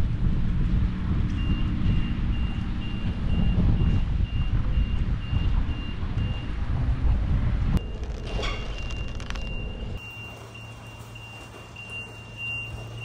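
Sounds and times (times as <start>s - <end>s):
loud low rumble: 0.0s - 10.0s
electronic warning beeps: 1.3s - 6.6s, 7.8s - 13.0s.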